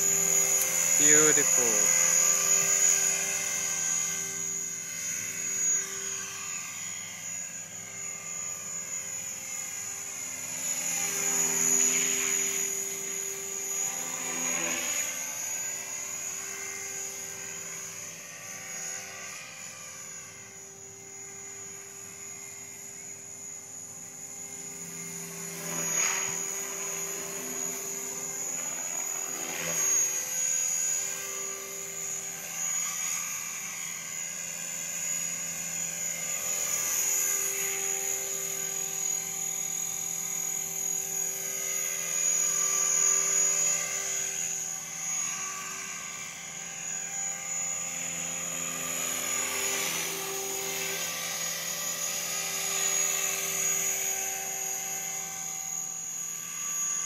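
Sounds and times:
model helicopter whining: 0.0s - 57.0s.

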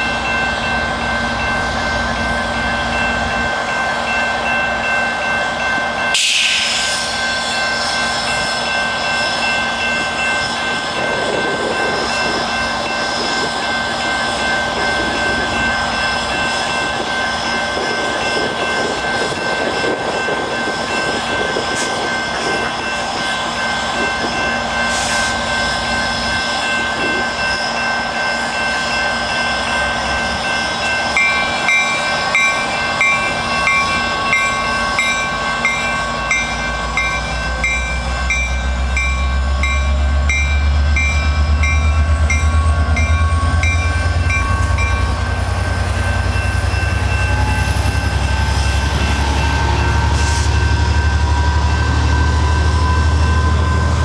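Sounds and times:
level-crossing bell ringing: 0.0s - 6.2s, 7.2s - 53.9s
diesel locomotive engine rumble: 0.0s - 54.0s
train coaches rolling past: 0.0s - 54.0s
rising engine whine: 29.7s - 54.0s.

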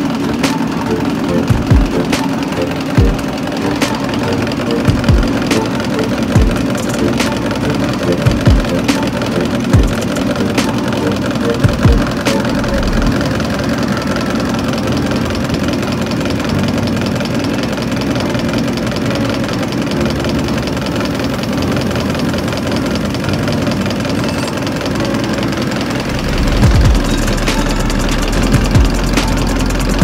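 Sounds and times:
fast even ticking: 0.0s - 30.0s
injection pump mechanical hum: 0.0s - 30.0s.

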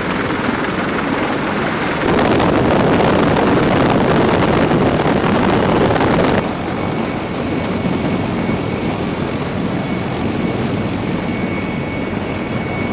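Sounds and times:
faint turbine whine: 0.0s - 12.9s
helicopter rotor and engine noise: 0.0s - 12.9s
loud rushing noise: 2.0s - 6.4s.

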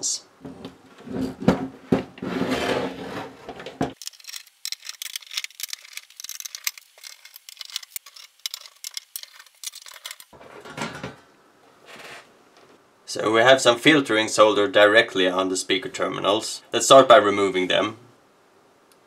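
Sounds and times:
metal chassis sliding on wood: 0.4s - 10.9s
screwdriver undoing screws: 4.0s - 10.3s.

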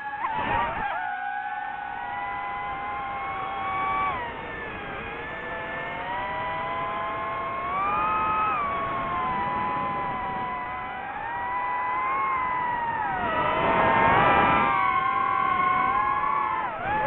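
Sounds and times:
drone propellers whining: 0.0s - 17.0s.

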